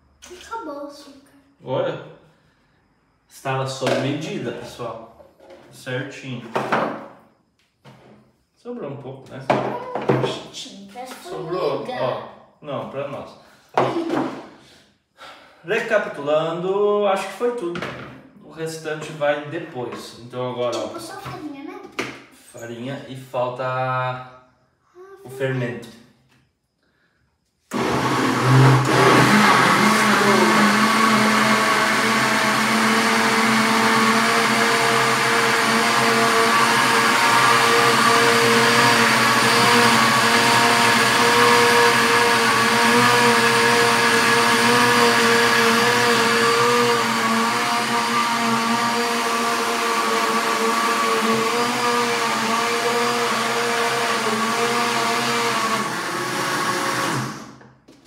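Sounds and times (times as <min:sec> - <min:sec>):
blender running: 0:27.7 - 0:57.7.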